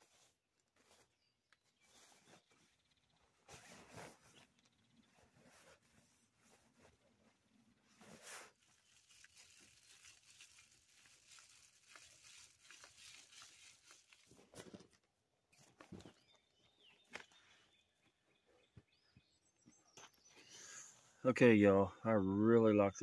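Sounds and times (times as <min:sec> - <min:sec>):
tent fabric rustling: 0:00.0 - 0:14.9.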